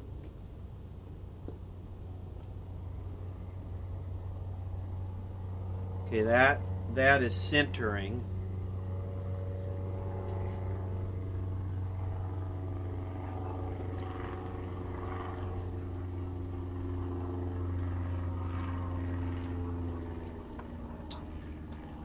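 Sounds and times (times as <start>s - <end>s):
television electrical hum: 0.0s - 22.0s.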